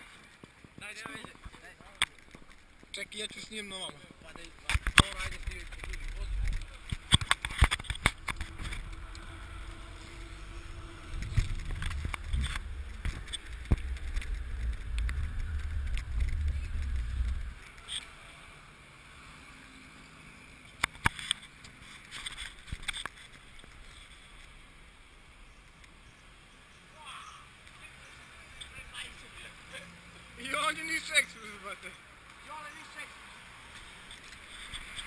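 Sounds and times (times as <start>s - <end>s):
wind rumbling on microphone: 4.8s - 18.0s.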